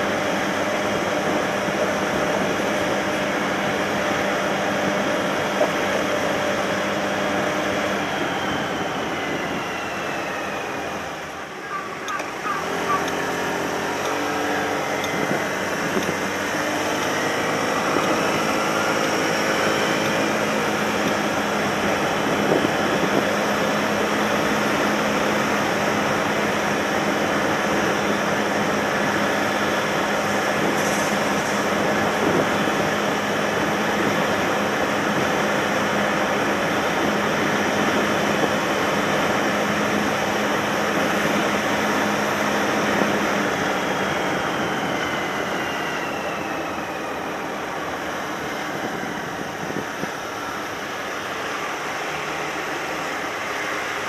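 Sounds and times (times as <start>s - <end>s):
scooter engine running: 0.0s - 30.7s
wind and road noise: 0.0s - 54.0s.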